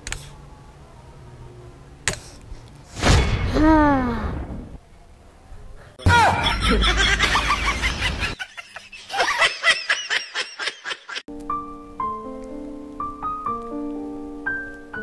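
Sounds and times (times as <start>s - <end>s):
giggling laughter: 6.1s - 11.2s
slow piano music: 11.3s - 15.0s.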